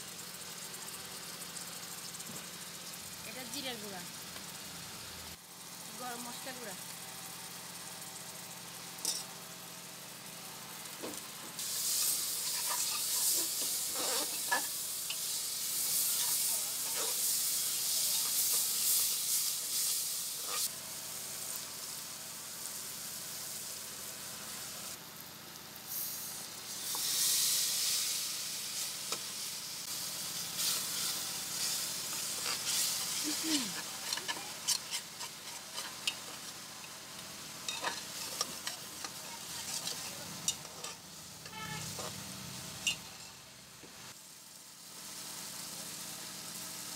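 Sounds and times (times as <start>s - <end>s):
curry sizzling in a pot: 0.0s - 46.9s
spatula scraping metal pot: 12.4s - 14.7s, 32.1s - 36.6s, 37.7s - 42.2s.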